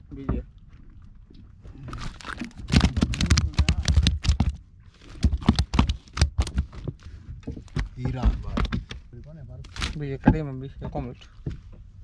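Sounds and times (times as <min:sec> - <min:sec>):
fish slapping wooden deck: 0:01.9 - 0:09.0.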